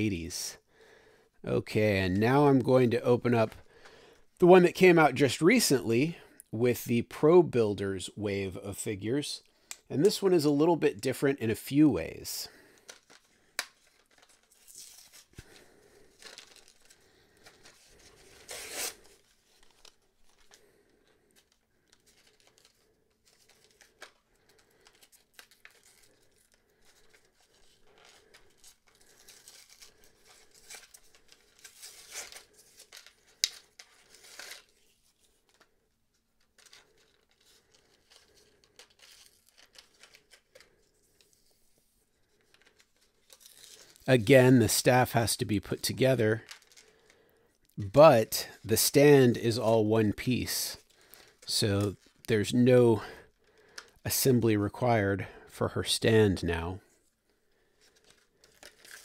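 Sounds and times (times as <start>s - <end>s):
plastic blister crinkling: 12.5s - 44.8s, 46.0s - 48.7s, 50.4s - 52.3s, 53.2s - 54.0s, 57.0s - 59.0s
cardboard ripping: 16.2s - 20.0s.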